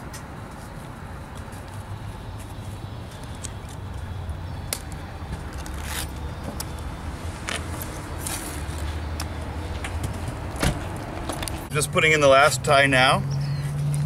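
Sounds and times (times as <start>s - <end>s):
wire scraping and rustling: 5.3s - 6.7s.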